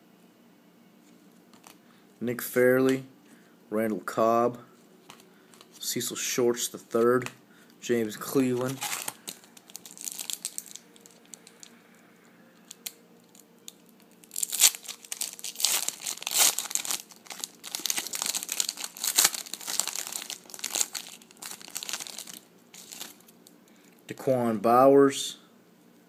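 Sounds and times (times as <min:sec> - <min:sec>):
foil wrapper crinkling: 0:08.4 - 0:11.7, 0:12.7 - 0:23.5.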